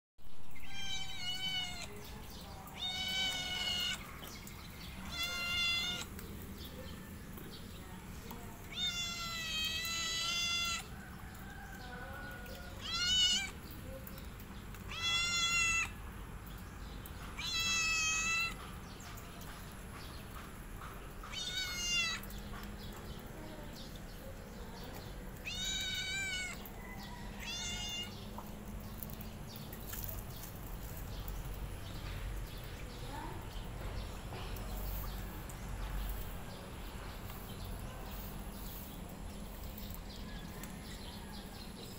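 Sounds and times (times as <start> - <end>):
cat meowing: 0.6 - 2.0, 2.7 - 4.1, 5.0 - 6.1, 8.6 - 11.0, 12.6 - 13.6, 14.8 - 16.0, 17.4 - 18.6, 21.3 - 22.3, 25.4 - 28.2.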